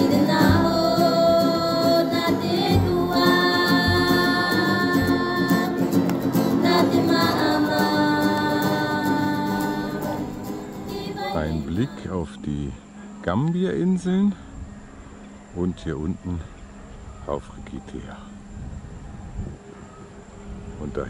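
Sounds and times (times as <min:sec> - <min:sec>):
group of voices singing: 0:00.0 - 0:12.2.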